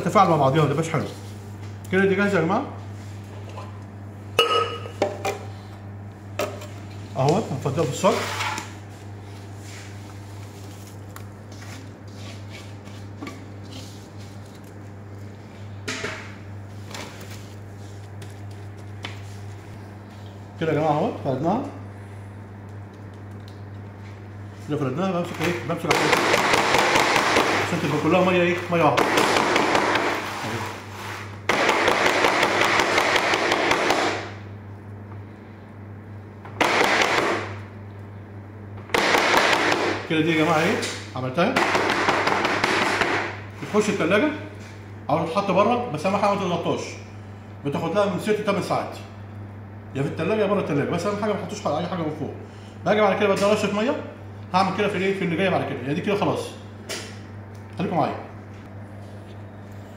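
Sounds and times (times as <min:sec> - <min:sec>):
steady low hum: 0:00.0 - 0:59.9
soft scrapes and rustles: 0:07.7 - 0:14.6.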